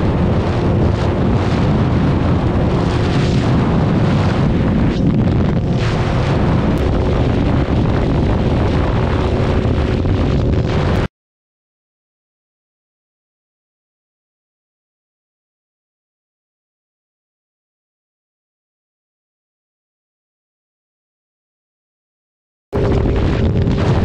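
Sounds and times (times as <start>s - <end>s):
wind buffeting microphone: 0.0s - 11.1s, 22.8s - 24.0s.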